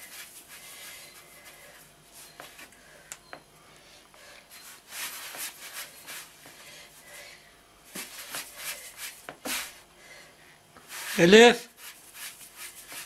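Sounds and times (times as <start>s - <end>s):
hands rubbing dough on board: 7.9s - 9.8s, 10.9s - 13.0s.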